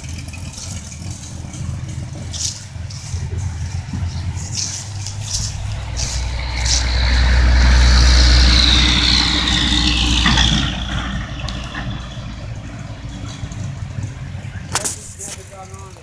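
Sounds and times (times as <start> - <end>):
vehicle engine rumble: 0.0 - 16.0
high whine falling in pitch: 3.0 - 12.5.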